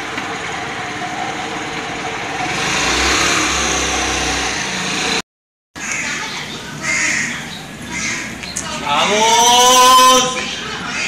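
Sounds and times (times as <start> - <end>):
scooter engine revving: 0.0 - 5.2.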